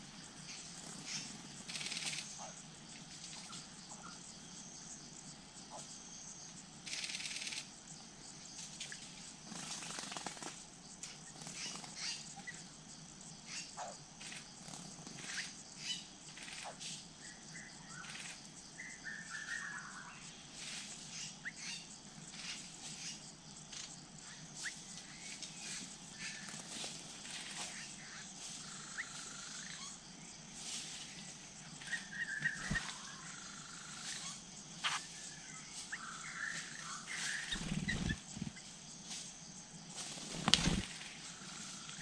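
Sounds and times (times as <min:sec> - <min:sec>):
wings fluttering: 0:00.6 - 0:03.7, 0:08.6 - 0:12.6, 0:14.2 - 0:15.5, 0:24.6 - 0:29.9, 0:30.6 - 0:39.3, 0:39.9 - 0:42.0
forest birds chirping and whistling: 0:11.1 - 0:12.7, 0:13.4 - 0:30.4, 0:31.0 - 0:38.8.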